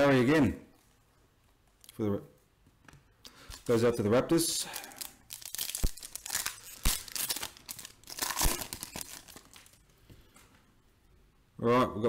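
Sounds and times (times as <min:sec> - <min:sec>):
foil wrapper tearing and crinkling: 0:04.7 - 0:09.8.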